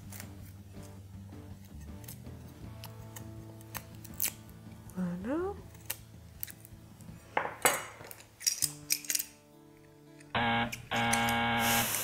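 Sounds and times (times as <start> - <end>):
knife scraping garlic clove: 0.0 - 4.4
loud steady tone: 10.4 - 12.0.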